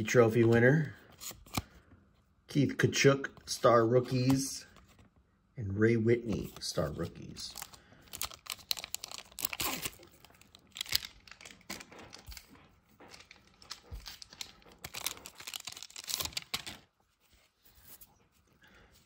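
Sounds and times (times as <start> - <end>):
foil pack crinkling: 7.5 - 16.9
foil tearing: 8.2 - 10.1.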